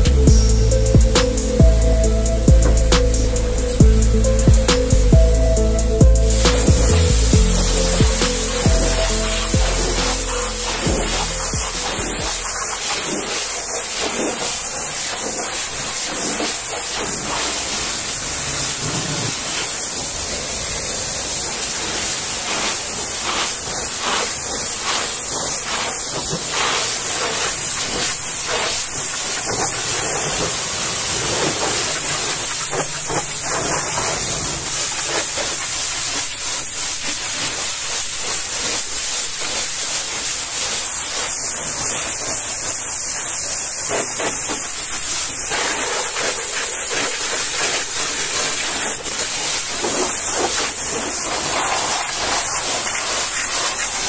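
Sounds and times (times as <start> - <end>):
pressure washer jet hissing: 0.0 - 54.0.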